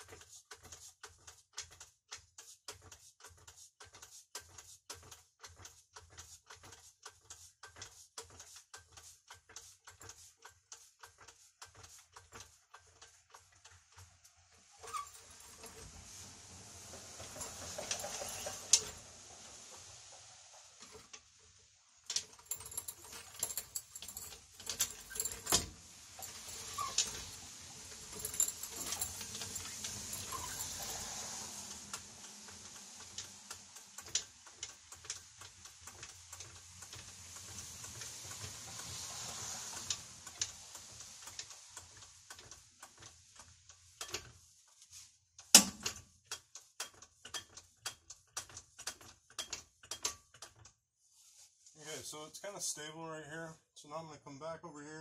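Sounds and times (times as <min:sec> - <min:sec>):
floor jack pumping clicks: 0:00.0 - 0:14.3.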